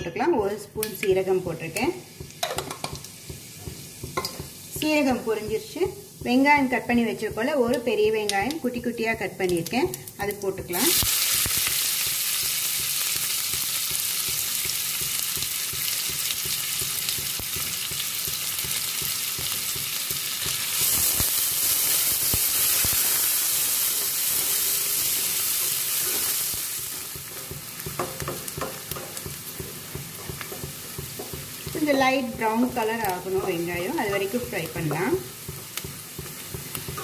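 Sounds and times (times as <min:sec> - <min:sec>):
onions sizzling in oil: 0:00.0 - 0:37.0
spatula stirring in pan: 0:23.5 - 0:37.0.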